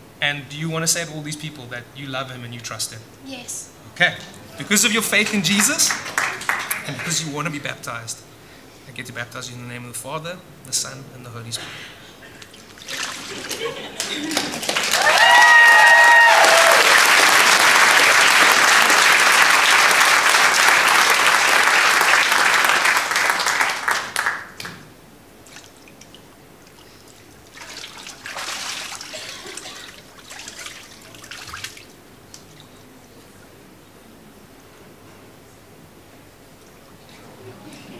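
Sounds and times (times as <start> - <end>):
congregation applauding: 4.6 - 7.6, 12.9 - 24.8.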